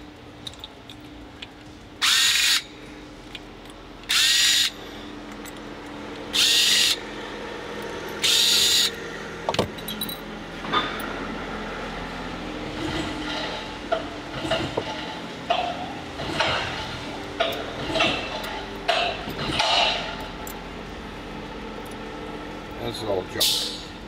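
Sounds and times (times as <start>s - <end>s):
cordless drill spinning: 2.0s - 2.6s, 4.1s - 4.8s, 6.3s - 7.0s, 8.2s - 9.0s.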